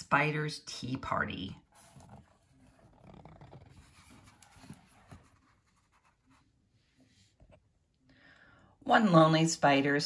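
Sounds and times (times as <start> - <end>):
book pages turning: 1.7 - 6.4.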